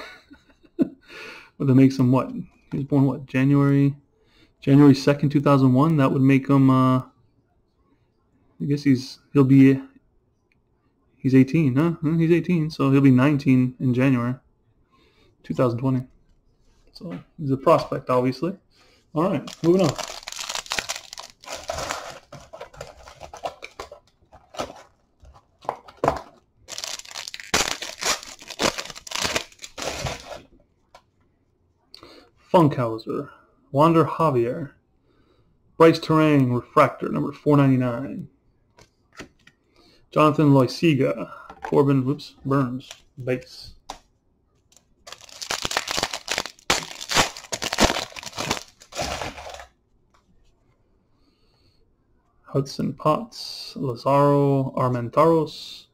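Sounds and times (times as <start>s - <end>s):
foil wrapper tearing and crinkling: 19.4s - 24.9s, 26.7s - 30.4s, 45.1s - 49.7s.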